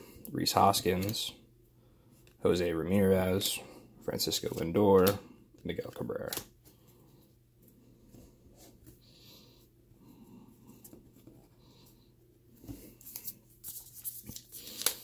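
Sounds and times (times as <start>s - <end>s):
trading cards rustling and scraping: 12.6s - 15.0s.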